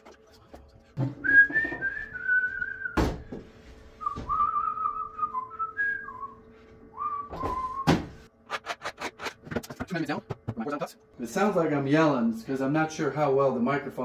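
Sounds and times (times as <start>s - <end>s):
person whistling a tune: 1.2s - 3.0s, 4.0s - 8.0s.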